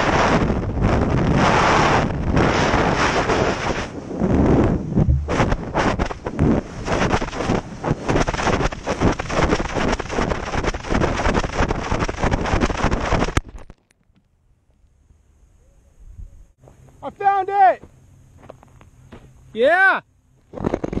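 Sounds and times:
wind buffeting microphone: 0:00.0 - 0:13.4
sharp knock on ground: 0:05.0 - 0:06.2.

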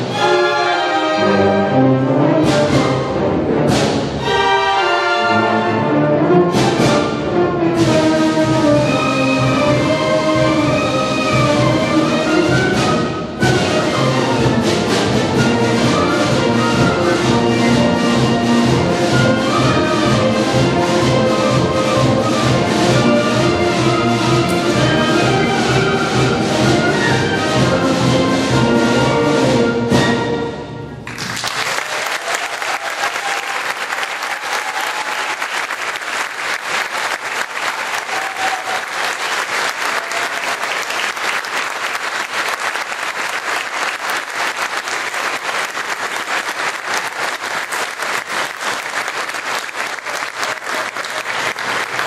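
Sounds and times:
orchestra playing march chord: 0:00.0 - 0:31.0
audience applause: 0:31.0 - 0:52.0.

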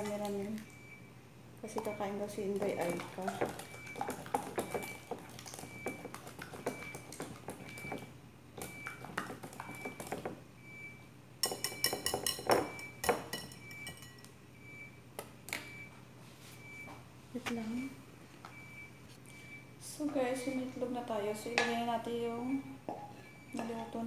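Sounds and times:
whisk clinking against glass bowl: 0:02.6 - 0:08.0, 0:11.4 - 0:14.3.

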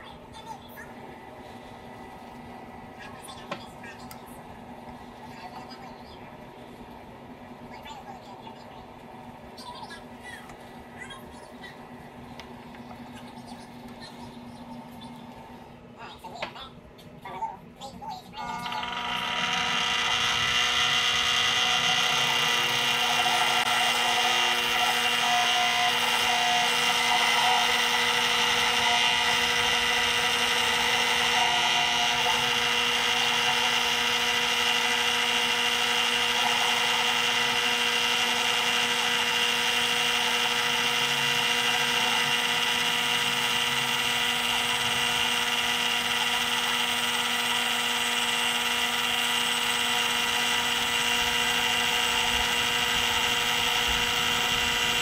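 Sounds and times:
lathe motor whine: 0:18.4 - 0:55.0.

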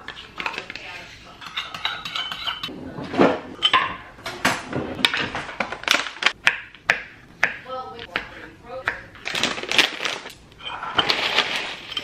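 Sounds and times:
spoon scraping cup and bowl: 0:00.1 - 0:02.7
dishes clinking and knocking: 0:01.4 - 0:09.0.

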